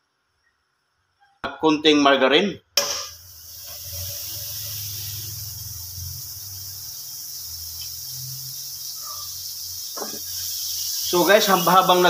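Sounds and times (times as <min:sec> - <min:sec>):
margarine sizzling in wok: 0:02.8 - 0:12.0.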